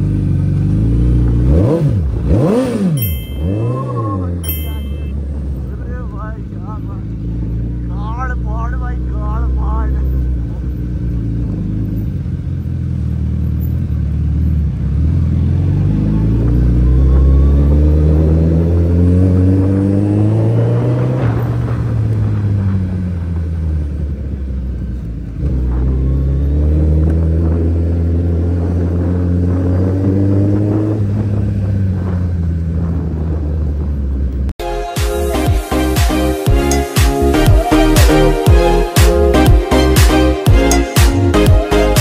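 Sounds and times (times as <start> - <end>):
motorcycle engine accelerating: 0.0 - 34.6.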